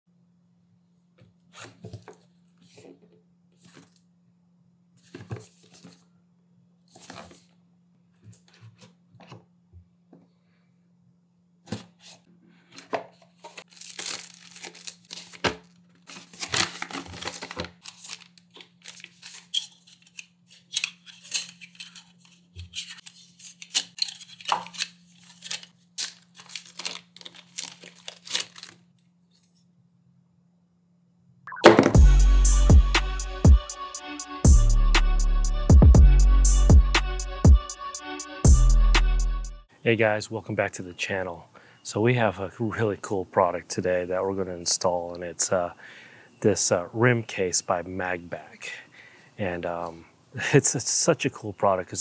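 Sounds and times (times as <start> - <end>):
tearing and rustling: 13.4 - 29.5.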